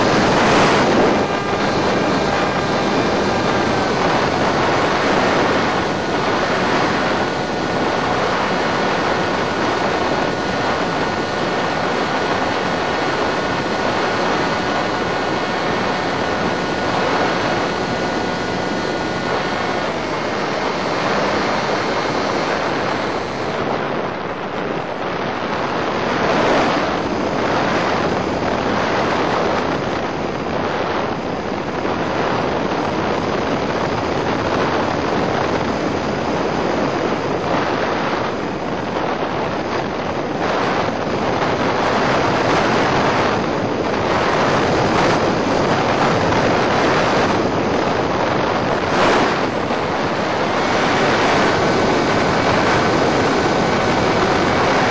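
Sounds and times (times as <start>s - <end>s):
faint electric motor whine: 0.0s - 54.9s
loud rushing air noise: 0.0s - 54.9s.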